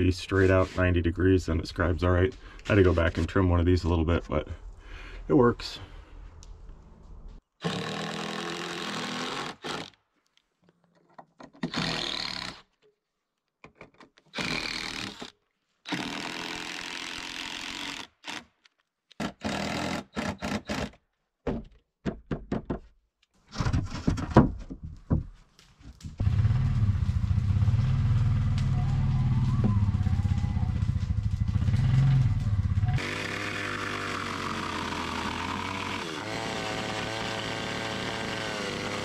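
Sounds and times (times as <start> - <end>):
short wooden knocks: 21.4 - 25.4
impact driver running: 30.9 - 39.0.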